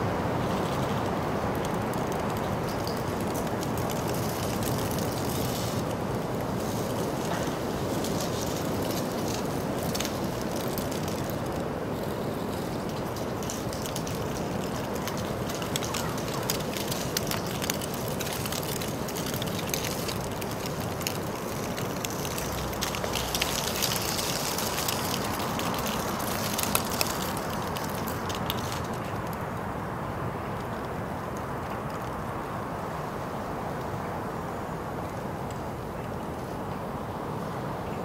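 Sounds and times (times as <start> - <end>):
low street hum: 0.0 - 38.0
small clicks and rattles: 0.4 - 29.4.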